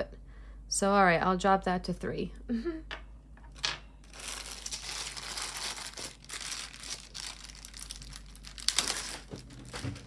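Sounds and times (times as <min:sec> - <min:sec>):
plastic bag crinkling: 0:03.5 - 0:10.0.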